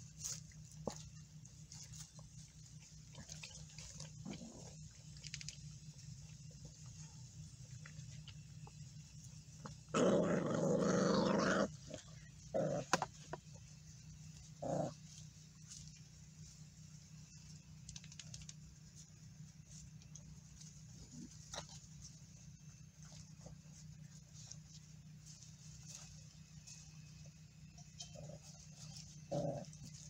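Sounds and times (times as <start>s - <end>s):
puppies growling: 0.0s - 5.4s, 9.0s - 13.6s, 14.2s - 16.0s, 27.2s - 30.0s.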